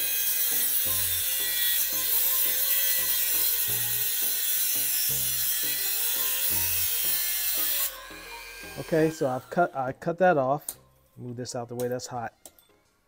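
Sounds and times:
rotary tool grinding wire: 0.0s - 9.9s.

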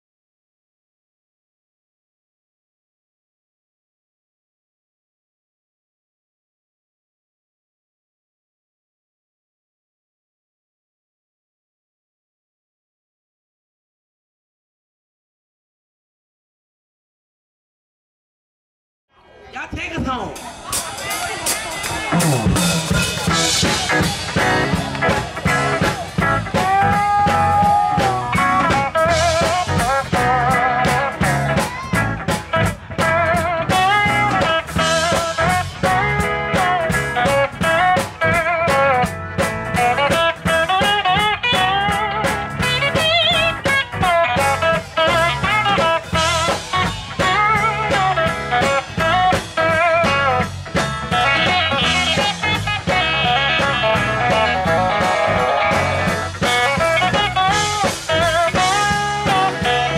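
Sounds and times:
gospel band playing: 19.6s - 59.9s
steel guitar sliding notes: 33.0s - 59.9s.

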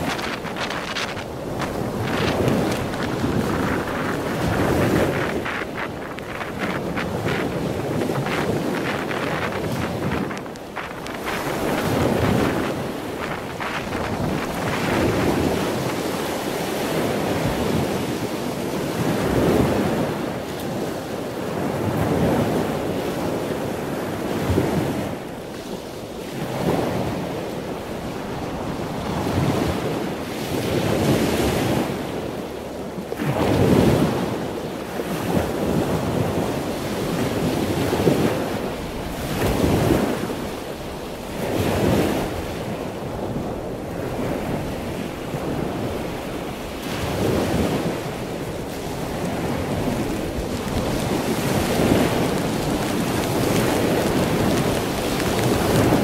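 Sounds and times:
storm surf breaking: 0.0s - 21.0s, 35.0s - 56.0s
wind buffeting microphone: 0.0s - 56.0s.

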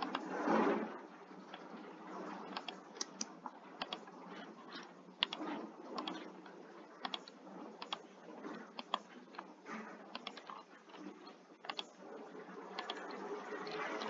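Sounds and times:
computer mouse clicking: 0.0s - 0.7s, 2.4s - 9.5s, 10.1s - 12.0s, 12.7s - 14.0s.

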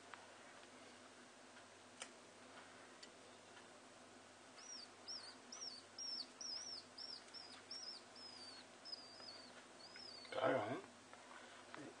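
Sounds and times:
bird chick chirping: 4.6s - 10.4s.

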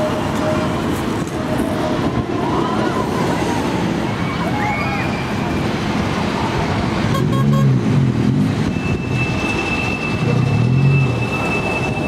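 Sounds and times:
tram motors and wheels on rails: 0.0s - 12.0s
high-pitched wheel squeal: 8.7s - 12.0s.

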